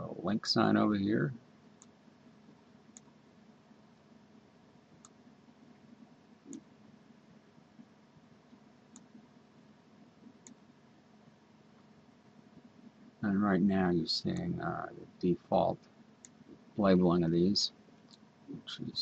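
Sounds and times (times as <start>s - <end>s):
computer mouse clicks: 1.8s - 3.2s, 5.0s - 5.2s, 6.4s - 6.7s, 8.5s - 9.3s, 10.4s - 10.6s, 15.8s - 16.6s.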